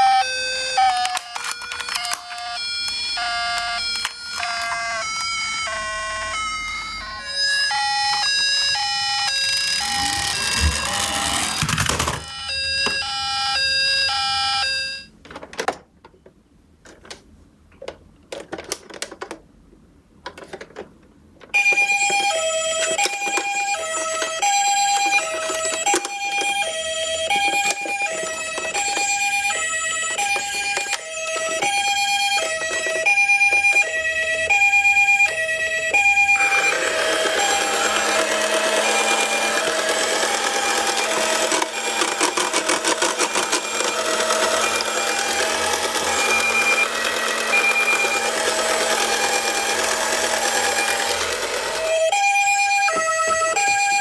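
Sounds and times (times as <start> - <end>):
electronic stepped siren tones: 0.0 - 15.1, 21.6 - 54.0
two-tone hi-lo siren: 0.0 - 15.1, 21.6 - 54.0
plastic toy clicks and knocks: 0.8 - 5.3, 9.7 - 13.0, 17.8 - 19.5, 20.2 - 33.9, 36.4 - 52.0.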